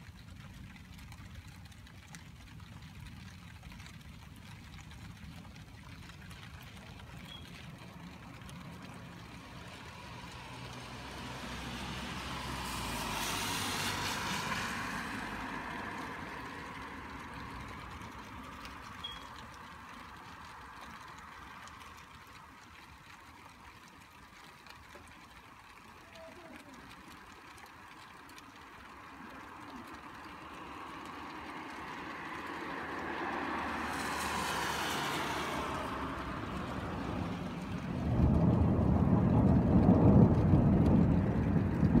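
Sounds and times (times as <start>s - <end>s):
steady rain: 0.0s - 42.0s
car tyres hissing on wet road: 9.2s - 18.4s, 30.5s - 42.0s.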